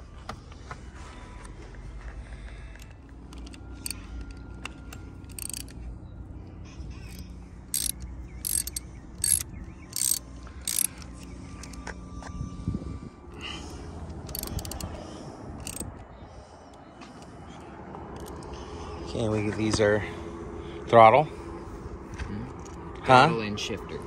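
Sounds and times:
rapid ratcheting clicks: 2.8 - 5.8, 7.0 - 11.8, 14.3 - 15.0, 15.6 - 15.9, 18.2 - 18.5.

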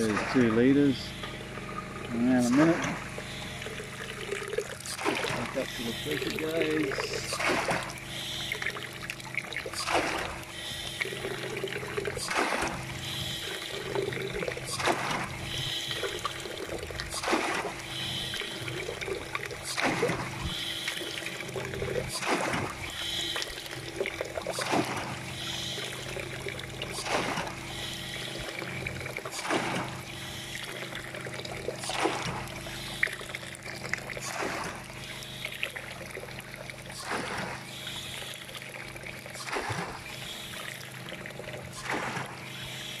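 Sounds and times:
splashing water: 0.0 - 43.0
ram pump valve surge and thump: 4.9 - 9.0, 9.8 - 16.4, 17.1 - 18.8, 19.6 - 23.6, 24.4 - 31.0, 31.8 - 33.2.

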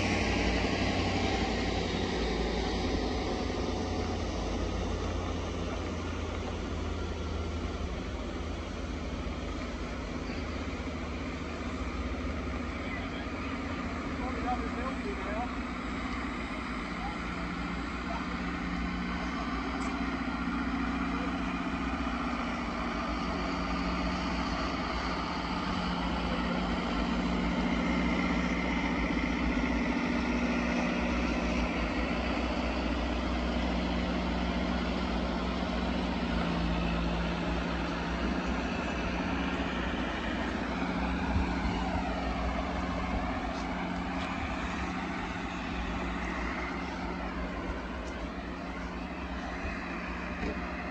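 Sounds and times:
diesel trucks driving past: 0.0 - 50.9.

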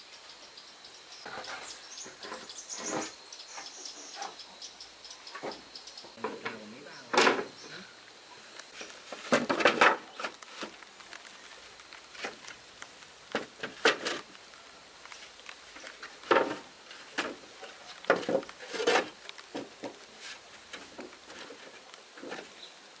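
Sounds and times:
objects scraping: 1.3 - 3.2, 8.6 - 14.4, 15.1 - 22.6
small objects tapping and clicking: 8.6 - 22.4.

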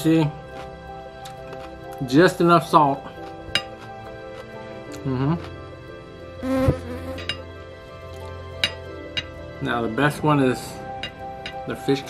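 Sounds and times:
fly buzzing: 6.4 - 7.4.

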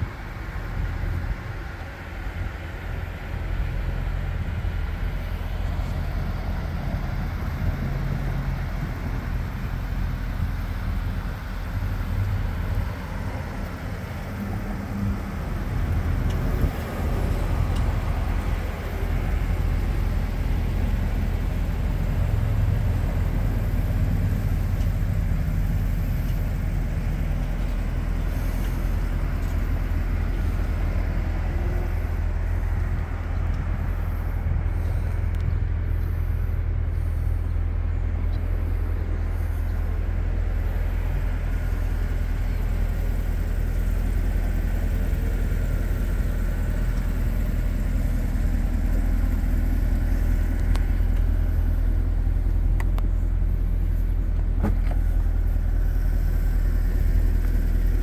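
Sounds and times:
low outdoor rumble: 0.0 - 58.0.

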